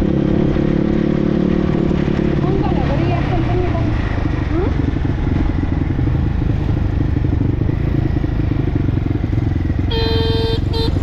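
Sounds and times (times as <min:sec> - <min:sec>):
dirt bike engine running: 0:00.0 - 0:11.0
horn honking: 0:09.9 - 0:11.0.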